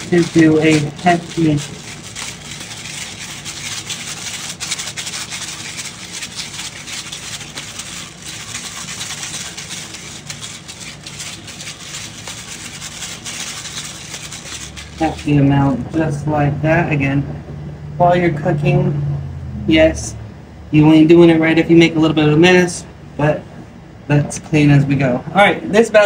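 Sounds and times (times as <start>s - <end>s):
pepper grinder grinding: 0.0s - 16.1s.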